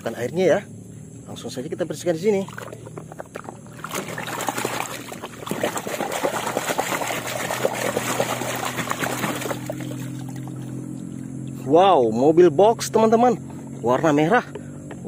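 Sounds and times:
muddy water splashing: 2.2s - 11.7s.

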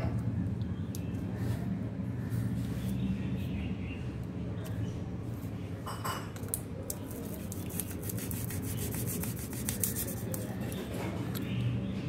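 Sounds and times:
knife scraping dry egg case: 7.2s - 10.6s.

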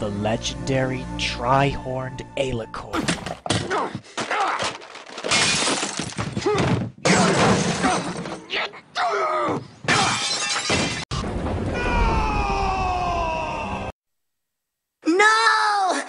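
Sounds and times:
loud crashing and shattering: 3.0s - 3.6s, 4.6s - 8.4s.

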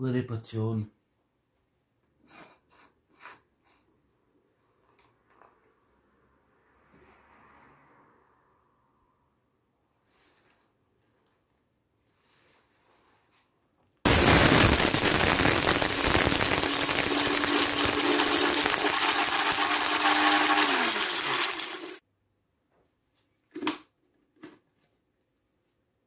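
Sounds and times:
blender motor whining: 14.1s - 22.0s
popping caps crackling: 14.1s - 22.0s.

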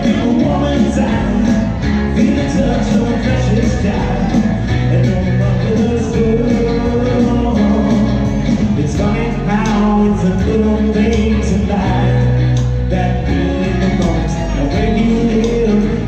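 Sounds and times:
country-rock band playing: 0.0s - 16.0s
man singing into a microphone: 0.0s - 16.0s.

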